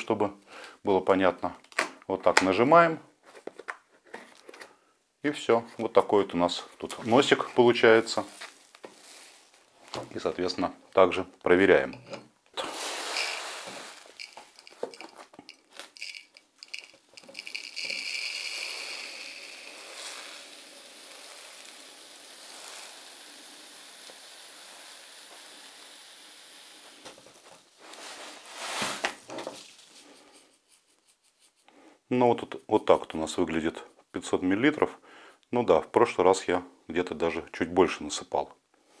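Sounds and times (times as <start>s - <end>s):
cat litter pouring into jug: 12.6s - 30.0s.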